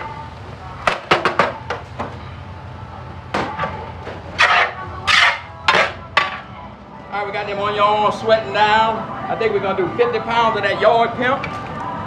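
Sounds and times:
metal paddle scraping a pot: 0:04.3 - 0:06.4.

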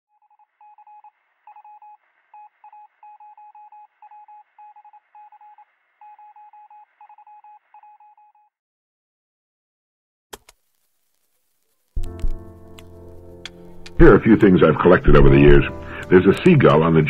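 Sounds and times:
morse code beeps: 0:00.2 - 0:08.5.

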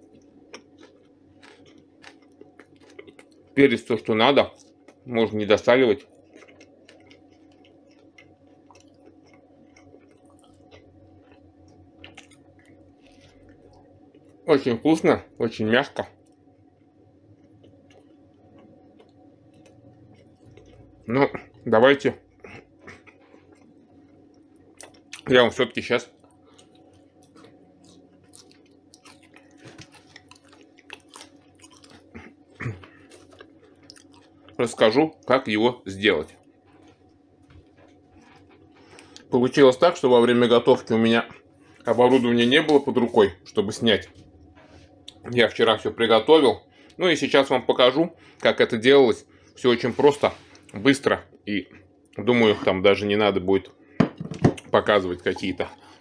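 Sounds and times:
person chewing: 0:00.0 - 0:03.6, 0:05.9 - 0:14.4, 0:16.2 - 0:21.6, 0:22.2 - 0:25.3, 0:26.2 - 0:34.6, 0:36.4 - 0:39.3, 0:44.2 - 0:45.3
low steady hum: 0:00.0 - 0:56.0.

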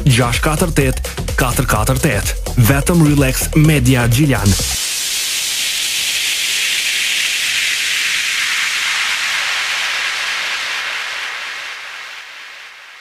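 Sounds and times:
steady hiss falling in pitch: 0:02.9 - 0:13.0.

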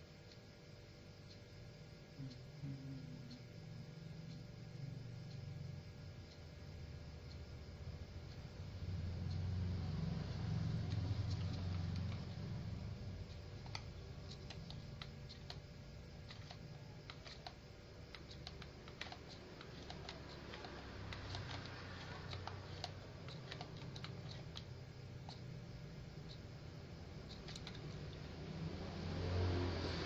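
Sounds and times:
irregular light clicks: 0:00.2 - 0:00.5, 0:08.1 - 0:28.4
steady low rumble: 0:02.2 - 0:30.0.

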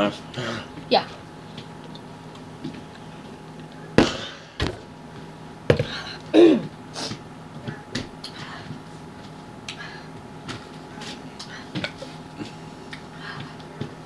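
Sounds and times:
boy coughing: 0:06.3 - 0:06.7.

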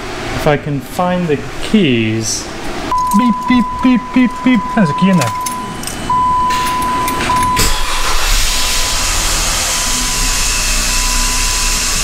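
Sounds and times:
key chime beeping: 0:02.9 - 0:07.8
engine cranking and idling: 0:02.9 - 0:12.0
harsh grinding noise: 0:05.9 - 0:12.0.

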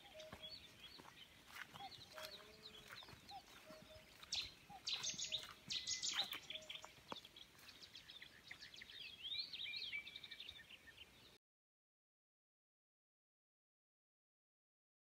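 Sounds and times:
birds calling and chirping: 0:00.0 - 0:11.4.

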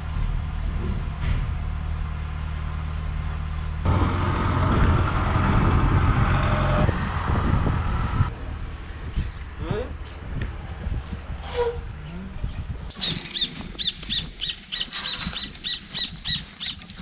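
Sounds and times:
vehicle engine humming: 0:00.0 - 0:12.5.

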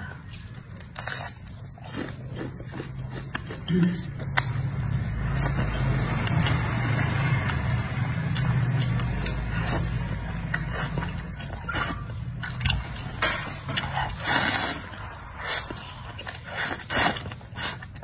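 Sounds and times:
slurping and chewing noodles: 0:00.3 - 0:13.1, 0:13.7 - 0:18.0.

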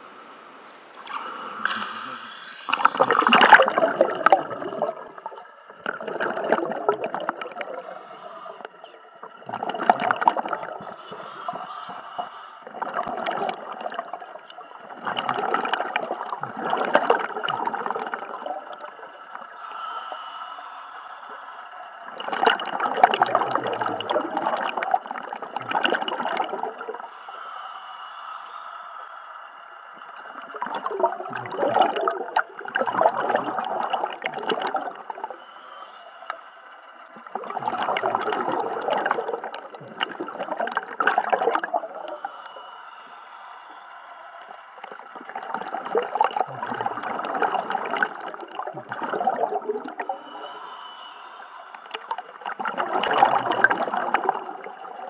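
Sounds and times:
underwater breath bubbles: 0:01.0 - 0:55.0.

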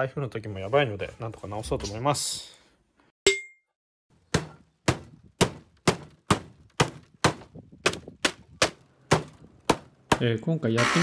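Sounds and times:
claw hammer striking wooden boards: 0:04.3 - 0:10.3.

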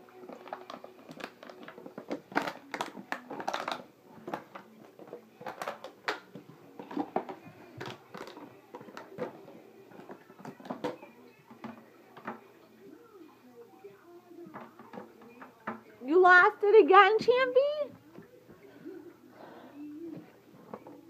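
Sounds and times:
plastic bottle crinkling and clattering: 0:00.0 - 0:12.5.

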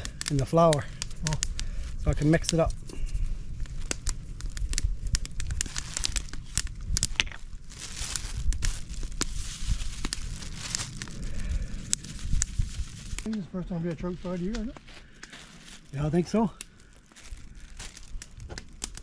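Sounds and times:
plastic bag crinkling: 0:03.6 - 0:13.4, 0:14.0 - 0:19.0.

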